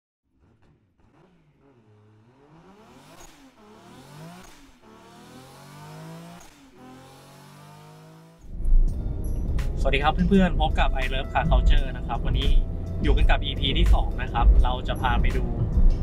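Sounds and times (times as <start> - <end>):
car engine revving and accelerating: 0.3 - 8.5.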